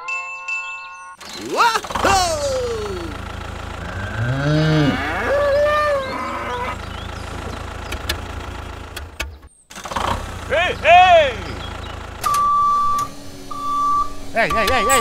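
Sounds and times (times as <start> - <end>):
low engine hum: 1.2 - 15.0
cattle mooing: 3.8 - 6.8.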